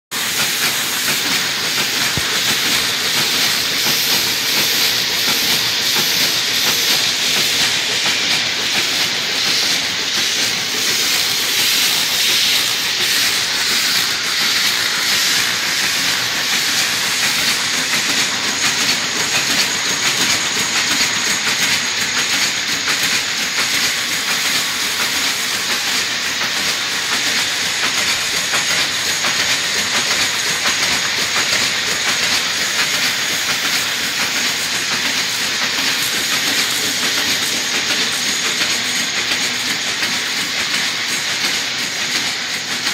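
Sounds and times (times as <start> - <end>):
print finishing machine running: 0.2 - 42.9.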